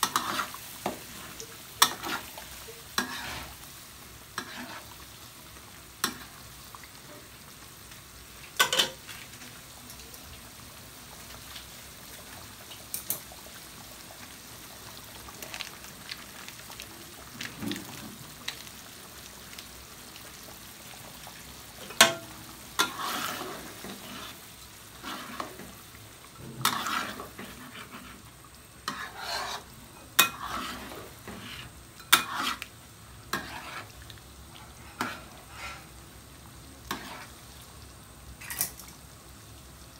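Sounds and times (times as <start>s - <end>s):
metal spatula scraping a pan: 0.0s - 3.7s, 4.4s - 5.0s, 21.9s - 25.8s, 26.4s - 32.7s, 33.3s - 34.0s, 34.6s - 35.9s, 36.9s - 37.4s
thick sauce simmering: 0.0s - 38.2s.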